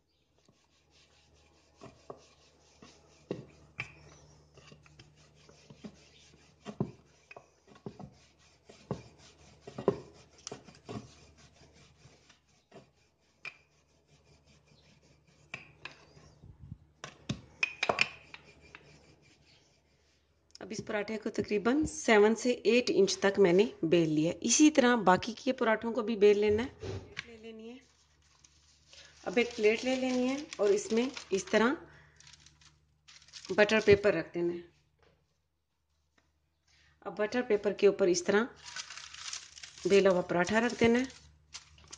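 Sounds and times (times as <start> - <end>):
rolling pin rubbing dough: 0.3 - 16.5, 18.0 - 20.3, 27.3 - 31.7, 33.3 - 35.4, 38.7 - 41.9.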